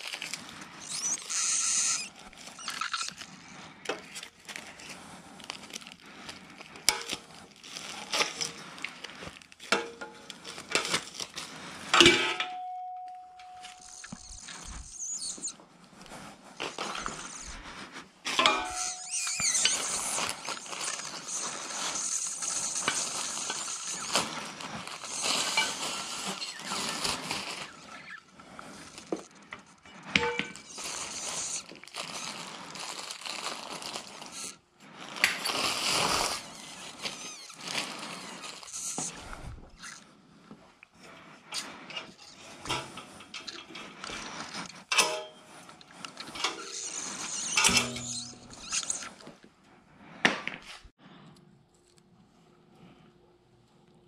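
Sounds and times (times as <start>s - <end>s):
metal tubes clinking and scraping: 0.0s - 5.6s, 6.8s - 32.2s, 41.4s - 49.2s
plastic wrapping rustling: 0.0s - 11.9s, 12.5s - 40.0s, 41.7s - 49.4s.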